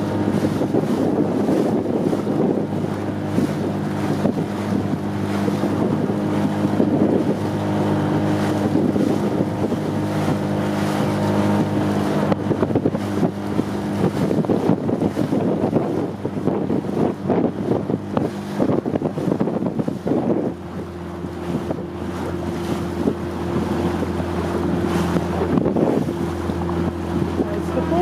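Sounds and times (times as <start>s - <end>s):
motorboat engine running: 0.0s - 28.0s
wind buffeting microphone: 0.0s - 28.0s.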